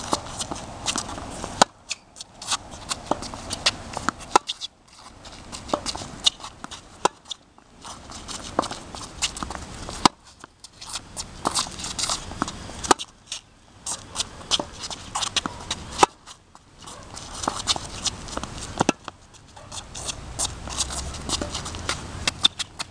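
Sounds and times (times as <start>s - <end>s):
racquet hitting tennis ball: 0.0s - 4.7s, 5.4s - 10.2s, 13.9s - 16.3s, 16.9s - 22.9s
quick footsteps and shoe scuffs: 13.3s - 22.9s.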